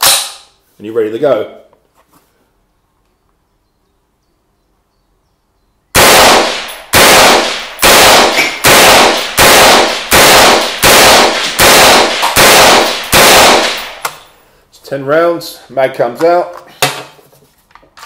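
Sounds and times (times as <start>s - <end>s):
rifle shots with echo: 6.0s - 14.3s.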